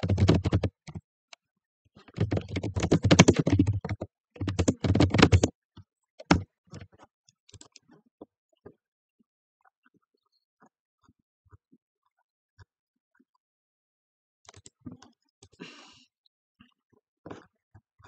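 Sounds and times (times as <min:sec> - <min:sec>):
typing on computer keyboard: 0:00.0 - 0:01.0, 0:02.1 - 0:05.5, 0:06.2 - 0:06.4.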